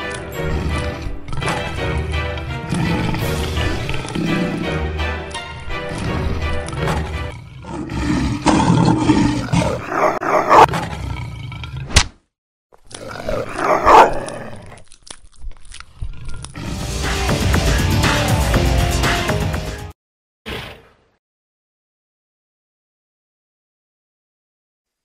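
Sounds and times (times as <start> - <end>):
background music: 0.0 - 7.8, 16.6 - 20.0
monster roars: 0.4 - 5.0, 5.8 - 11.9.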